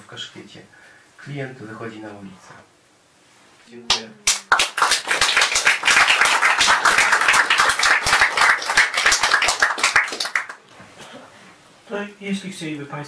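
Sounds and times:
audience applauding: 0:03.9 - 0:10.6.

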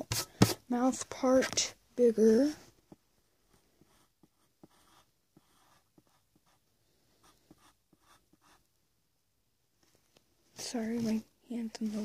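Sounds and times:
pencil scratching on paper: 0:00.0 - 0:00.7, 0:02.9 - 0:08.7.

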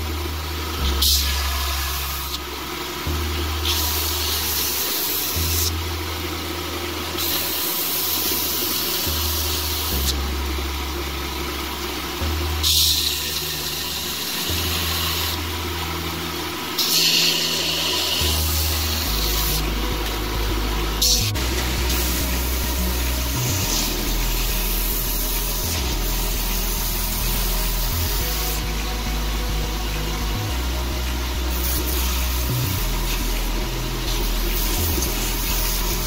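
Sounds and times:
motor humming: 0:00.0 - 0:36.0
belt sander sanding wood: 0:16.8 - 0:36.0.

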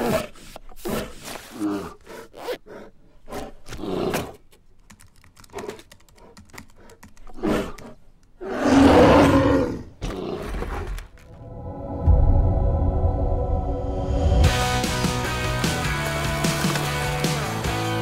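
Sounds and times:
laptop keyboard typing: 0:04.8 - 0:07.9
bear roar: 0:07.4 - 0:11.3.

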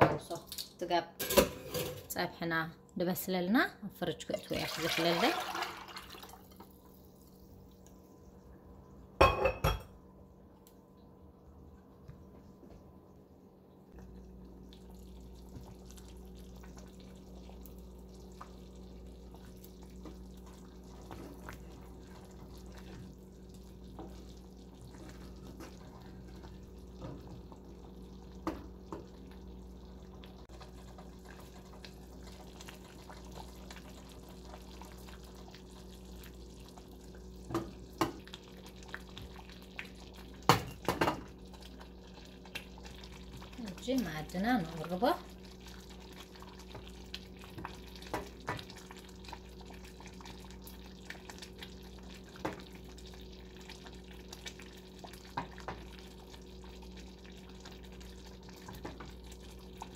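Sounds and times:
stew bubbling in a saucepan: 0:04.2 - 0:59.9
glass lid clinking on pan: 0:09.2 - 0:09.9.

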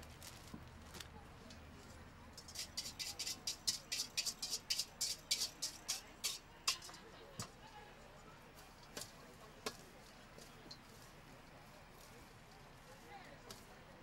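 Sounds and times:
utensil scraping metal bowl: 0:02.4 - 0:07.1.

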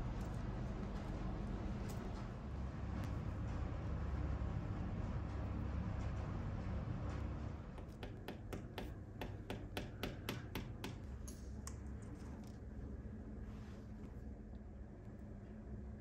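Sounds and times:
hammer tapping a nail: 0:07.8 - 0:11.1.

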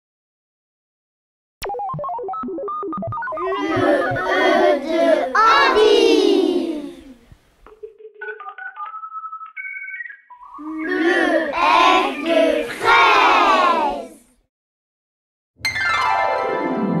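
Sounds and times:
children calling out together: 0:03.4 - 0:07.3, 0:10.6 - 0:14.3.

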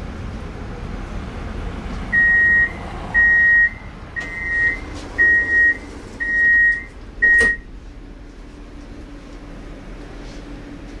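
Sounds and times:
train door warning beeps: 0:02.1 - 0:07.7.

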